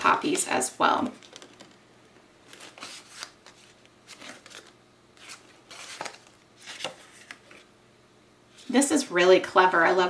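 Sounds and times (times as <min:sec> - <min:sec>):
cards shuffled by hand: 0:01.2 - 0:01.8, 0:02.4 - 0:07.7.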